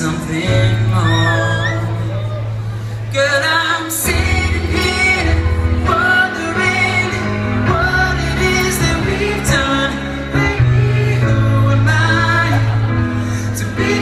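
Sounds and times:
bass line: 0.0s - 3.3s
man singing: 0.0s - 14.0s.

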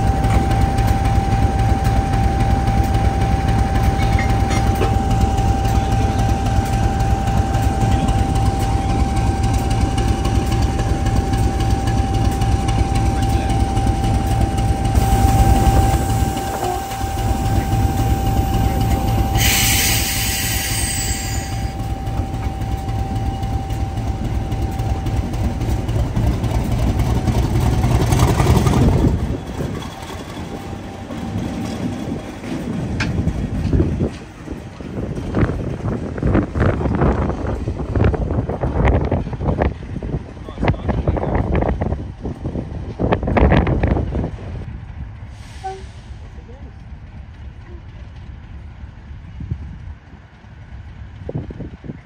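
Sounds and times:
diesel locomotive engine throbbing: 0.0s - 52.0s
sharp hiss: 19.4s - 21.5s.

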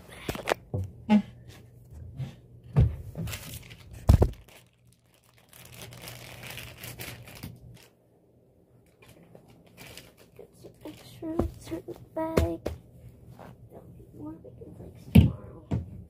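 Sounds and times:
bag crinkling and rustling: 3.2s - 8.0s, 8.8s - 11.7s.

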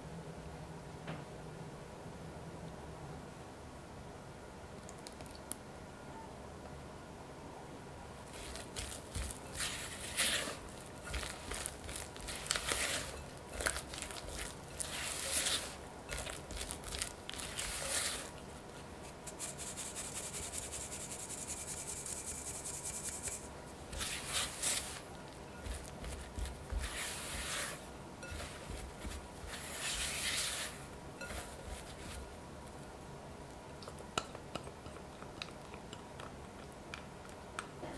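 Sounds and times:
flour sifted through mesh sieve: 8.2s - 32.4s
spatula scraping batter in bowl: 8.3s - 32.4s.

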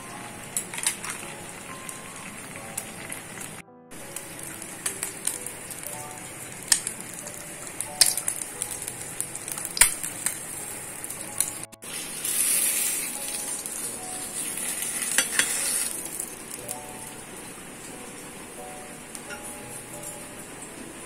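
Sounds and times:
egg sizzling in oil: 0.2s - 20.9s.

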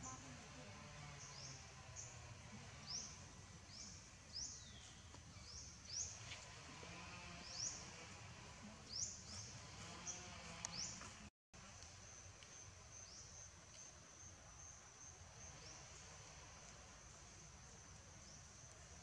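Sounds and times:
faint insect whine: 11.6s - 19.0s.

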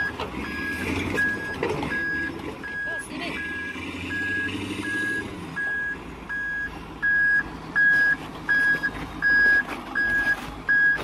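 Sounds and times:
reversing alarm beeping: 0.0s - 11.0s.

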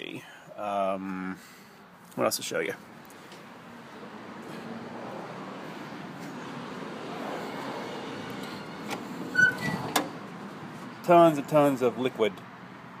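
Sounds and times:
short squeak: 9.3s - 10.0s
trunk latch clicks: 9.9s - 10.2s.

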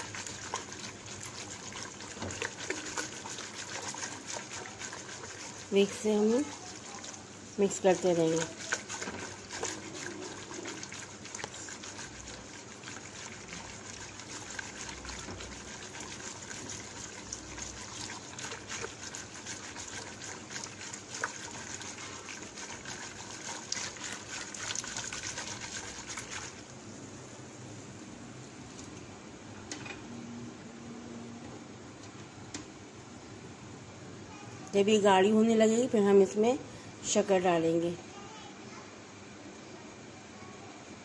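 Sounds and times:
whisk clicking against pot: 0.0s - 26.6s
whisk swishing in a pot: 0.0s - 26.7s.

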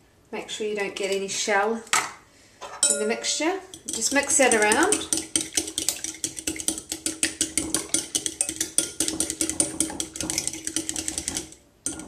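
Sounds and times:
fork clinking against glass bowl: 5.8s - 12.0s.

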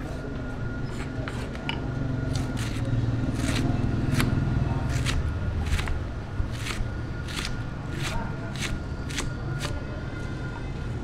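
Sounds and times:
knife chopping on wooden block: 3.4s - 9.8s.

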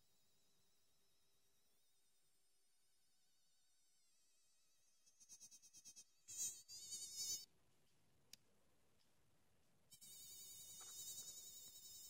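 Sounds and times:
toy electronic buzz: 10.0s - 12.0s.

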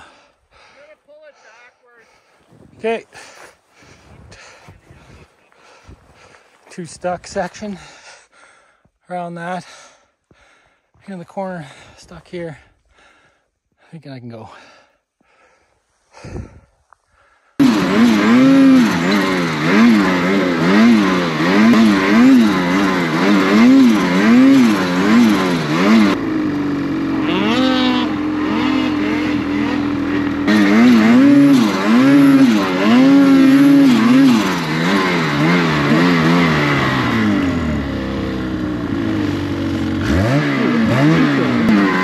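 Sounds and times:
second snowmobile revving: 17.6s - 42.0s
snowmobile engine revving: 17.6s - 42.0s.

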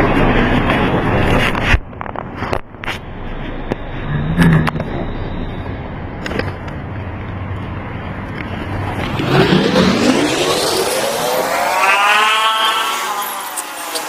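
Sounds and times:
vehicle engine revving up: 4.0s - 5.0s, 8.6s - 14.0s.

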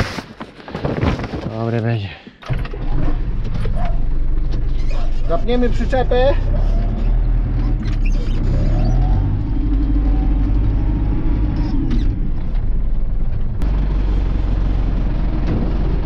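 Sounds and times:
tractor diesel engine running: 9.0s - 16.0s.

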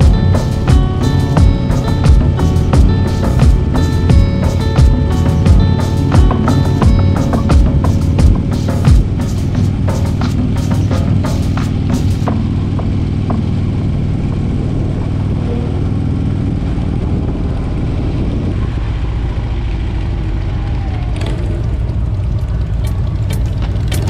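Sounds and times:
faint drum beat: 0.0s - 13.7s
motorcycle engine cruising: 0.0s - 24.0s.

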